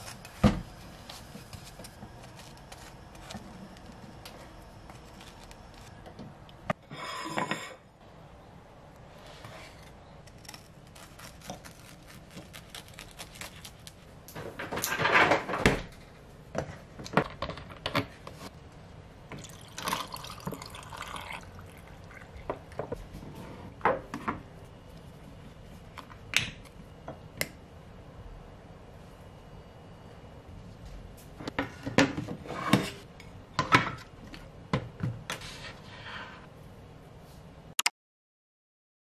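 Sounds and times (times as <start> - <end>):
dishes and glass clinking: 6.9 - 7.8
coffee pouring over ice cubes: 19.4 - 22.2.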